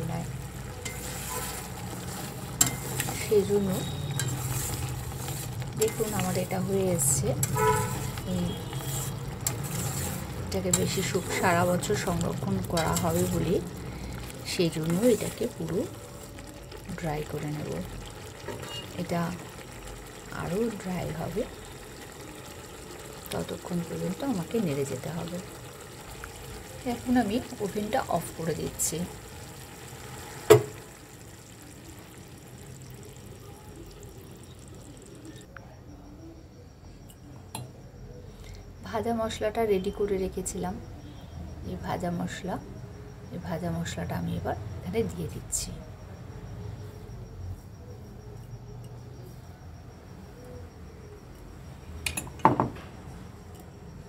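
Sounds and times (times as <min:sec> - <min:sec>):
syrup bubbling in a pan: 0:00.0 - 0:35.5.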